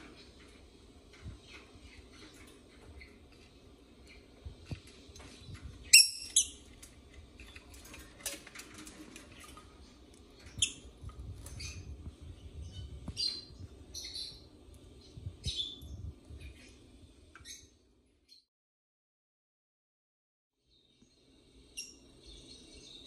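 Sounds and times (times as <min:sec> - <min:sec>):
birds chirping and squawking: 0:00.0 - 0:18.4.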